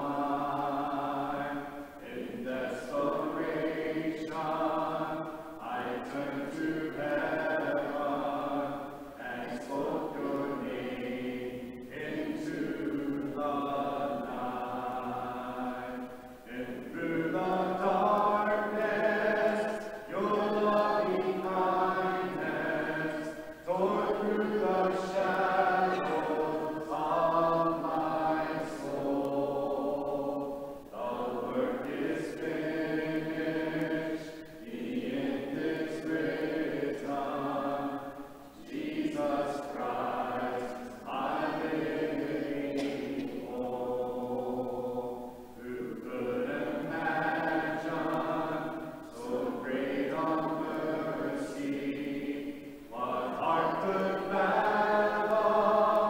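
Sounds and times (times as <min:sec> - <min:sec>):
congregation singing a hymn: 0:00.0 - 0:56.0.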